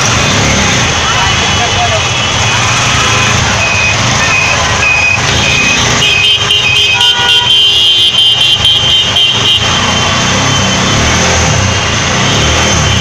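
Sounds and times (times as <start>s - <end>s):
engine noise: 0.0s - 13.0s
short beeps: 2.4s - 5.9s
vehicle horn honking: 5.2s - 10.2s.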